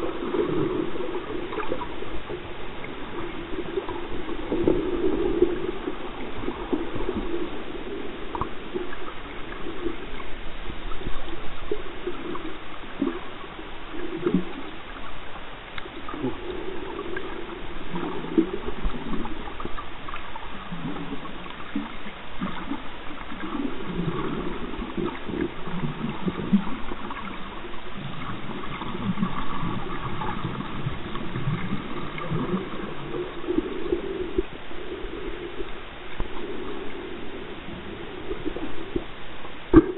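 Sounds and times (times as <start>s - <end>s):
underwater gurgling and sloshing: 0.0s - 39.9s
faint ticks: 14.1s - 16.4s.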